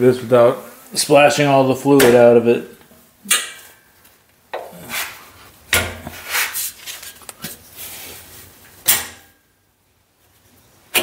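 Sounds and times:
sharp metal knock: 8.9s - 9.4s.

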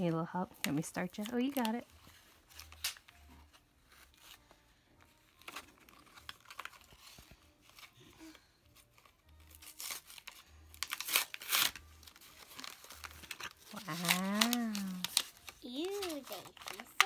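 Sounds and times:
packaging tearing and crinkling: 5.3s - 8.3s, 9.0s - 17.0s.

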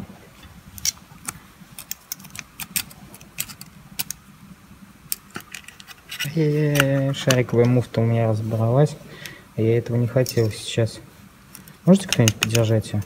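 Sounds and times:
metal parts clicking and clinking: 0.8s - 4.2s, 5.1s - 7.8s, 10.2s - 10.6s, 11.5s - 13.0s.

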